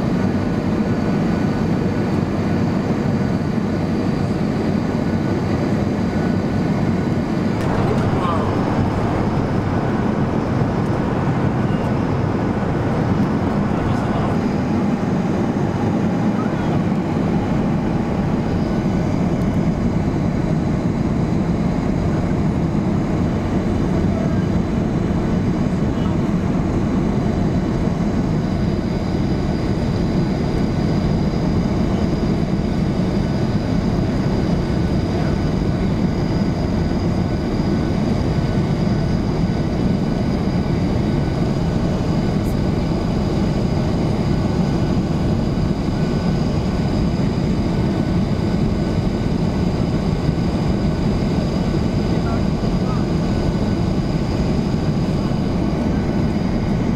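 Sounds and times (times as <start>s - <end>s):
jet engines humming: 0.0s - 56.9s
airflow rushing: 7.1s - 19.8s
faint high whine: 7.4s - 19.8s.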